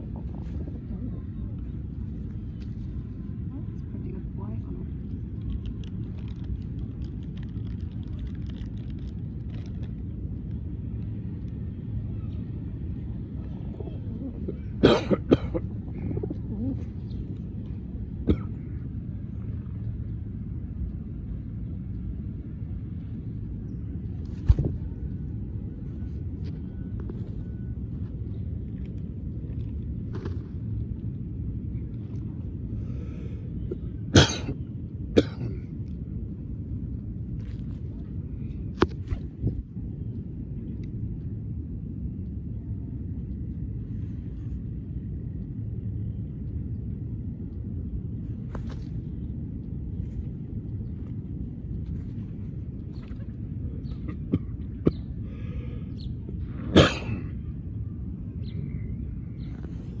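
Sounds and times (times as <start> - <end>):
low outdoor rumble: 0.0 - 60.0
loud cough-like burst: 14.8 - 15.7, 34.1 - 35.6, 56.7 - 57.3.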